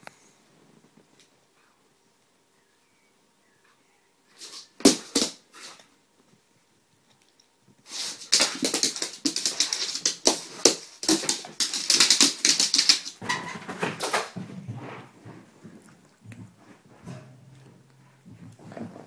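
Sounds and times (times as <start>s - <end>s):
dog claws scrabbling on wooden floor: 4.4s - 5.8s, 7.9s - 16.5s.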